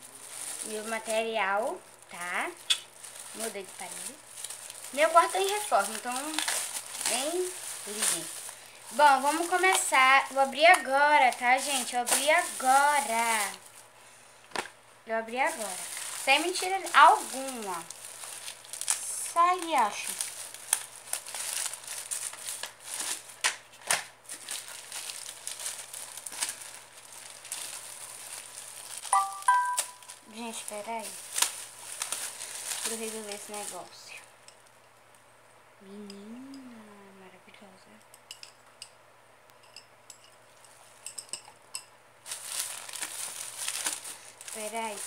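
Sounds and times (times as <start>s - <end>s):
packaging crinkling and rustling: 0.0s - 34.8s, 42.2s - 45.0s
small hard items clinking: 2.1s - 13.7s, 15.4s - 23.3s, 24.3s - 33.9s.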